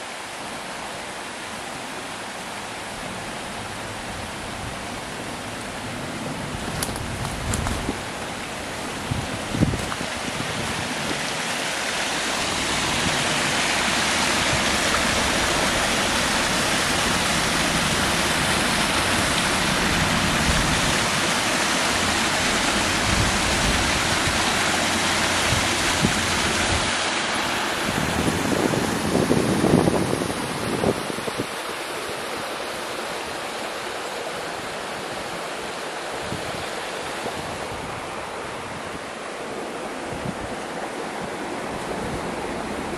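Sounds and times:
stream rushing over stones: 0.0 - 42.9.

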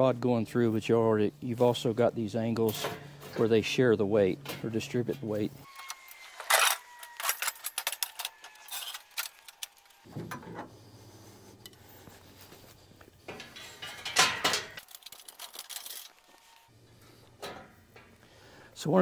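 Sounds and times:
metal ramp clanking and rattling: 2.7 - 3.4, 13.2 - 14.8, 17.4 - 18.2.

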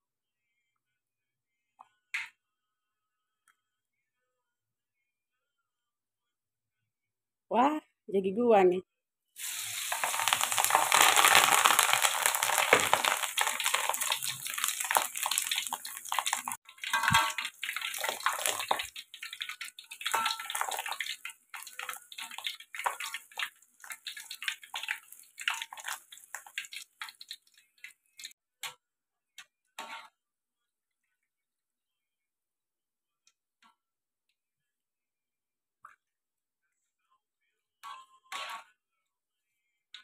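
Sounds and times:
deep-frying sizzle and crackles: 9.4 - 28.4.

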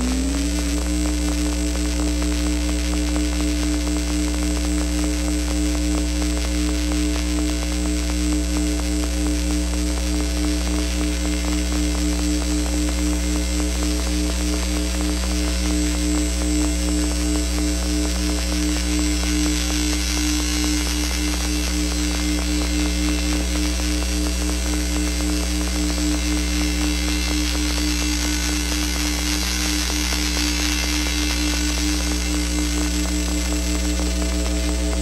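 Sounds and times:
synthesizer noise drone: 0.0 - 5.0, 9.9 - 35.0.

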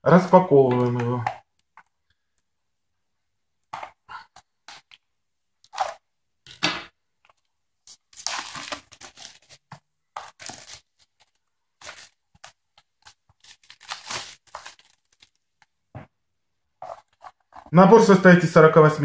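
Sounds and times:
plastic shrink wrap crinkling: 7.2 - 15.8.

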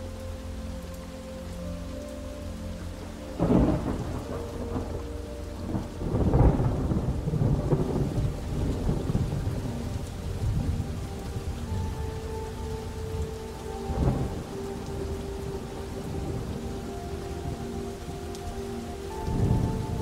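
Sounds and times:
steady rain: 0.0 - 20.0
thunder rolling: 3.4 - 12.0.

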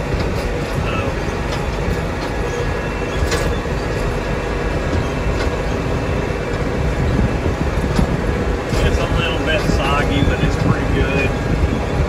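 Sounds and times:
tractor engine rumble: 0.0 - 12.0
faint clicks and rattles: 7.8 - 11.3.

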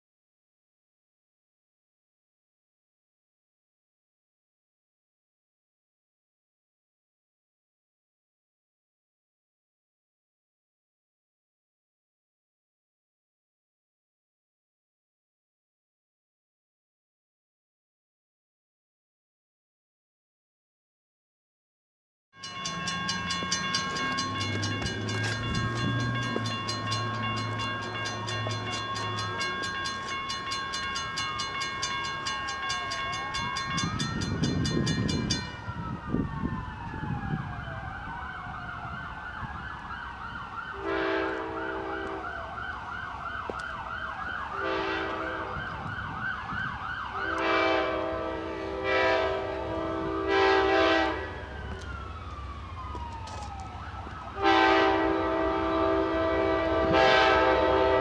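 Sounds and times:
crossing bell ringing rapidly: 22.4 - 35.8
siren wailing and yelping: 35.5 - 40.8, 51.2 - 54.4
train horn blasts: 40.8 - 42.4, 44.5 - 45.8, 47.2 - 51.8, 54.4 - 58.0.

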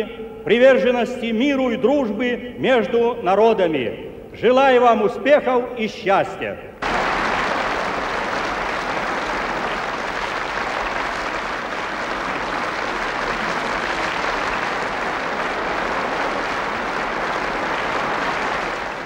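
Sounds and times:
stadium crowd clapping: 6.8 - 19.0.

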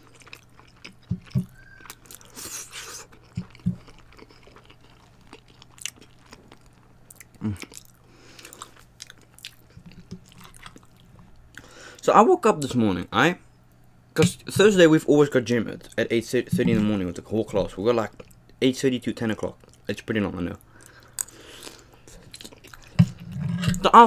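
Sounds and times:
chewing and crunching: 0.0 - 11.7, 20.6 - 23.9.

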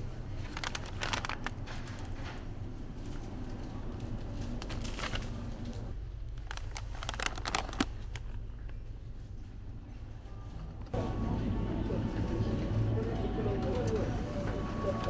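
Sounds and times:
plastic snack bags crinkling: 0.2 - 2.2, 4.2 - 8.8.

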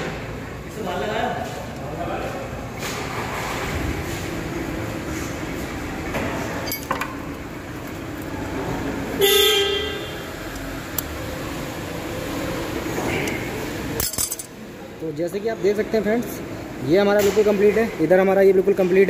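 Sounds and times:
vehicle horn toot: 9.2 - 10.4.

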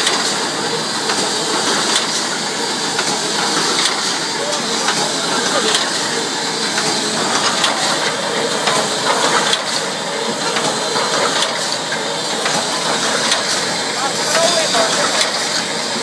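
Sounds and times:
welding machine clattering: 0.0 - 16.0.

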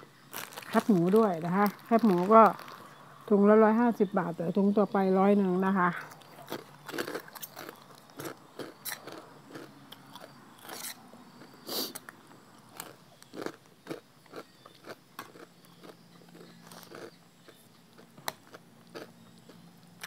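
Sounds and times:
person chewing crunchy food: 0.0 - 3.0, 6.0 - 20.0.

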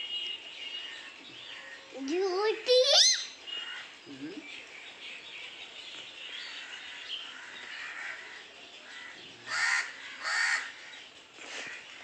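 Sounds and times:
small birds chirping: 0.0 - 12.0
crow cawing: 6.6 - 10.9.

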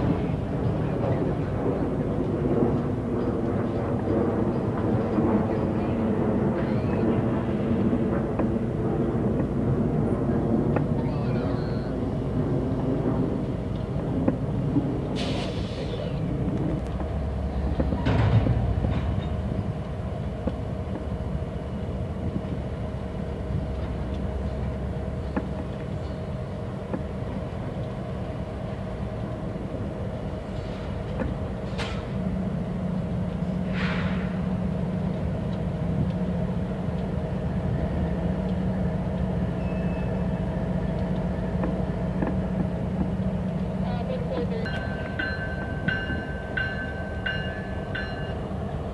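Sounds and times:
diesel locomotive rumble and hum: 0.0 - 48.9.

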